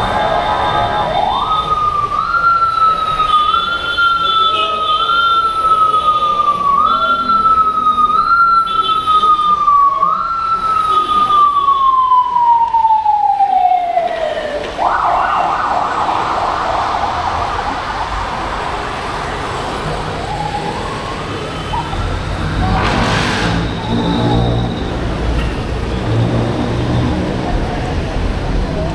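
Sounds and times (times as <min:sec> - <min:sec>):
siren wailing: 0:00.0 - 0:25.2
harsh steady noise: 0:14.6 - 0:25.1.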